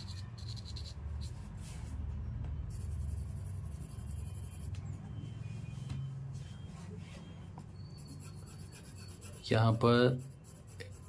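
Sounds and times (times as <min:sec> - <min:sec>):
pencil scratching on paper: 0:00.0 - 0:01.7, 0:02.7 - 0:04.8, 0:07.9 - 0:11.0
steady low hum: 0:00.0 - 0:11.0.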